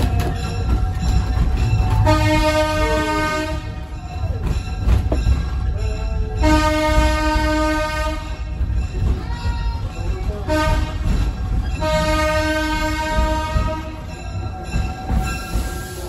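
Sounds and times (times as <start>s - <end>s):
moving train rumble: 0.0s - 16.0s
train horn blasts: 1.9s - 3.9s, 6.4s - 8.5s, 10.4s - 11.2s, 11.8s - 14.2s.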